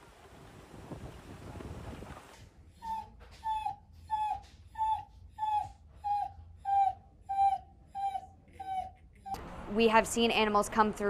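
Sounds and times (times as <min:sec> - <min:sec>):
dog whimpering: 0:02.8 - 0:09.4.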